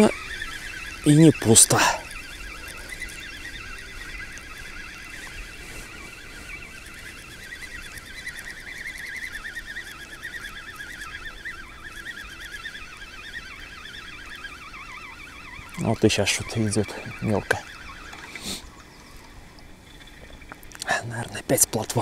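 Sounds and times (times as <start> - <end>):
chorus of warbling animal calls: 7.1 - 18.8.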